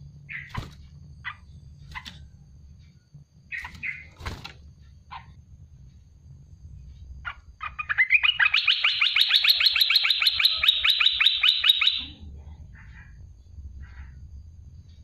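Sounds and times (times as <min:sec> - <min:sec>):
bird rapid trill: 0:00.2 - 0:02.3, 0:03.5 - 0:05.4, 0:07.2 - 0:12.2.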